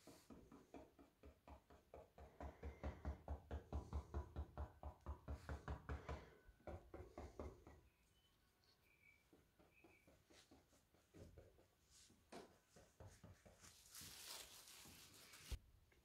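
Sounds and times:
paintbrush tapping on canvas: 0:09.0 - 0:14.0.

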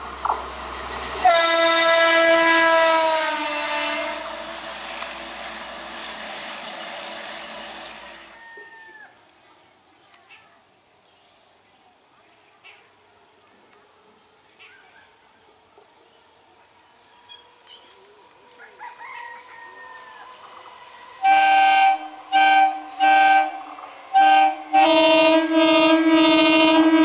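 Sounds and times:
train passing: 0:00.0 - 0:09.9, 0:15.5 - 0:27.0
train horn blasting: 0:01.2 - 0:05.4, 0:21.0 - 0:27.0.

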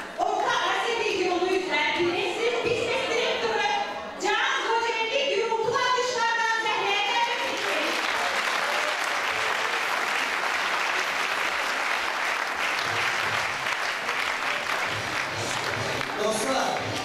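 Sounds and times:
audience applauding: 0:07.1 - 0:17.0.

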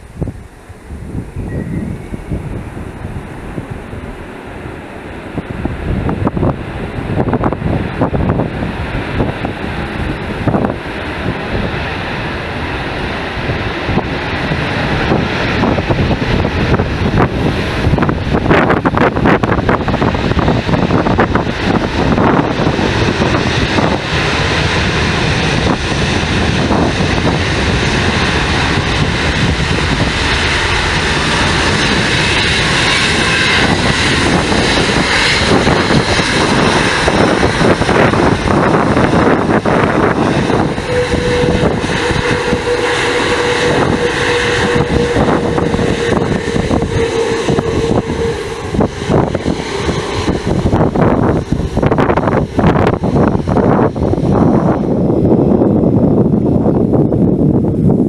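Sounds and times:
jet engines rumbling: 0:00.0 - 0:58.0
thin steady whine: 0:30.6 - 0:55.6.

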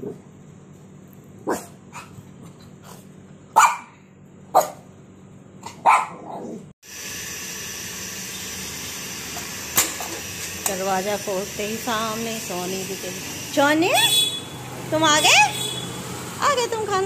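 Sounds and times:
dogs barking: 0:01.4 - 0:02.2, 0:03.5 - 0:04.9, 0:05.6 - 0:06.6
dogs yipping: 0:03.6 - 0:04.8, 0:05.6 - 0:06.6.

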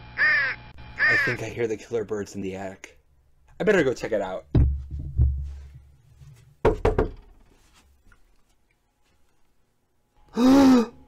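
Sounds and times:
dull knocks and thumps: 0:04.5 - 0:07.6.

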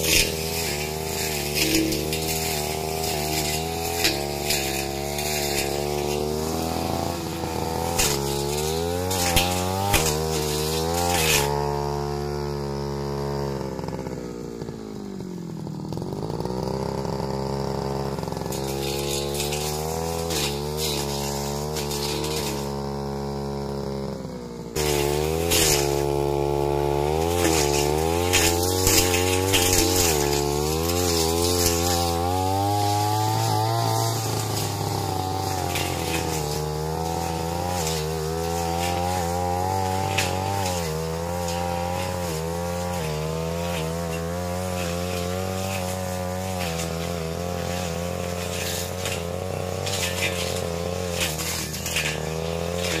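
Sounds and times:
blade swishing through brush: 0:00.0 - 0:12.3, 0:18.4 - 0:22.8, 0:24.8 - 0:53.0
brush cutter engine revving: 0:00.0 - 0:53.0.

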